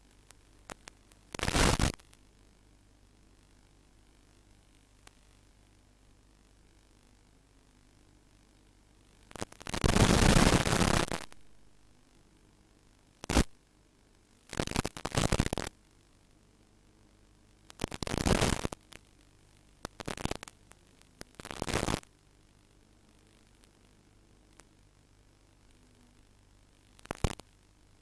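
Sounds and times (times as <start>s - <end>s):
bursts of hissing static: 0.0s - 2.2s, 9.2s - 11.4s, 13.2s - 13.5s, 14.5s - 15.8s, 17.7s - 23.8s, 25.6s - 27.8s.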